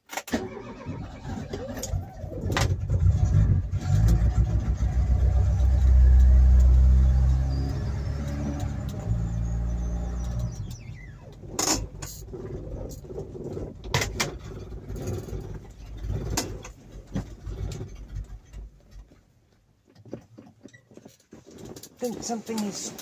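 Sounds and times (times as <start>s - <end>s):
car engine dying with whine: 0.4s - 18.6s.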